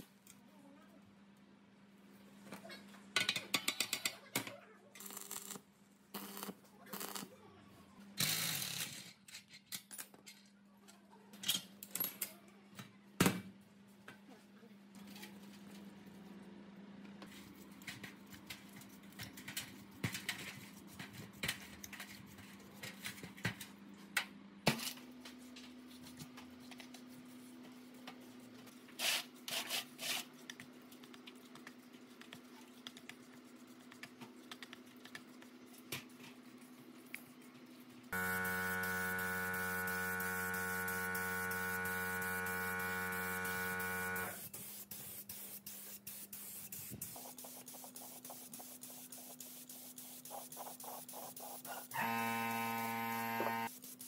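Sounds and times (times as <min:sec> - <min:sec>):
loud steady buzz: 0:38.2 - 0:44.4, 0:51.9 - 0:53.7
brush scrubbing metal: 0:38.4 - 0:51.9.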